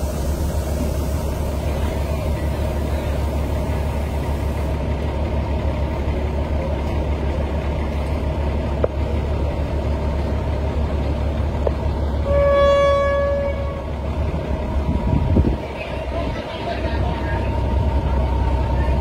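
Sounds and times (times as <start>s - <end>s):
train rumble: 0.0s - 19.0s
train horn: 12.2s - 14.0s.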